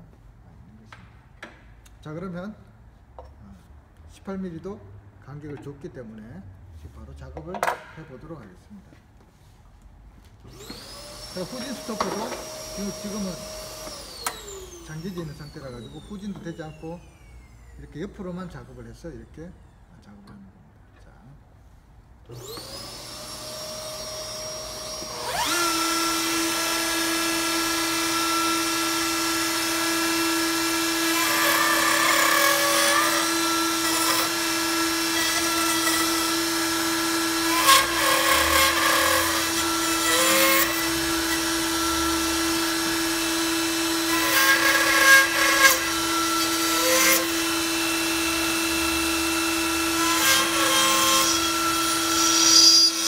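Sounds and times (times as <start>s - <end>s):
router motor whining: 10.4s - 17.8s, 22.3s - 53.0s
vacuum running: 10.5s - 17.7s, 22.3s - 35.5s, 47.2s - 50.6s
router bit cutting wood: 10.5s - 17.8s, 22.3s - 53.0s.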